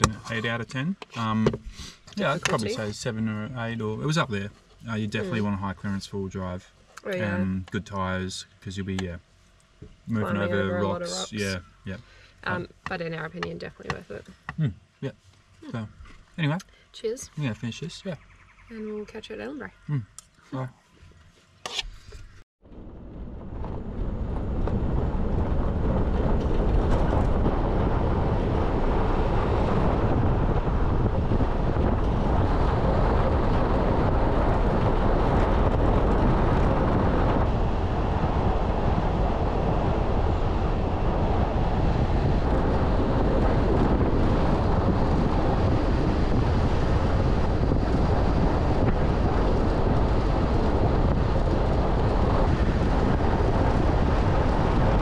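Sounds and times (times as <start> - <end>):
road and engine noise: 0.0 - 55.0
wind buffeting microphone: 22.7 - 55.0.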